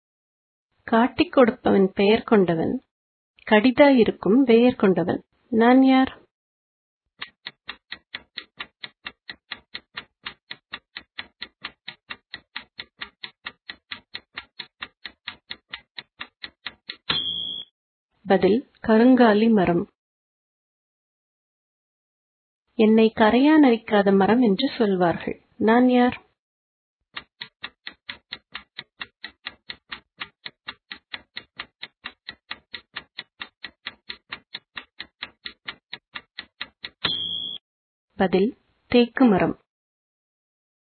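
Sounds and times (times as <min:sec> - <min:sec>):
clock ticking: 0:07.2 - 0:17.6, 0:27.1 - 0:37.6.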